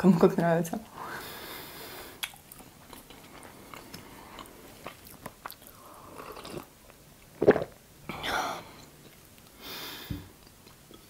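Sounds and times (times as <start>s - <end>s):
chewing clicks: 2.2s - 5.7s.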